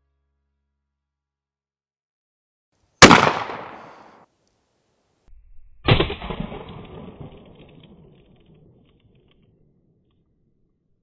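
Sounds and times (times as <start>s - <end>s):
shotgun blast: 3.0s - 4.2s, 5.8s - 8.0s.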